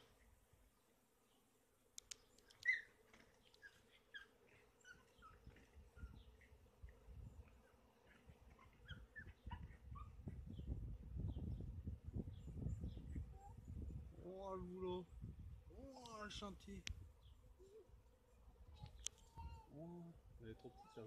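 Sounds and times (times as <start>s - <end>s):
honeybee swarm droning: 0.0s - 12.5s
bird chirps: 2.0s - 6.6s.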